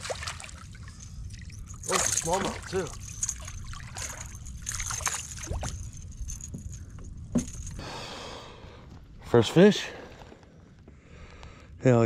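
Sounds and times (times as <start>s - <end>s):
water sloshing: 0.0s - 7.8s.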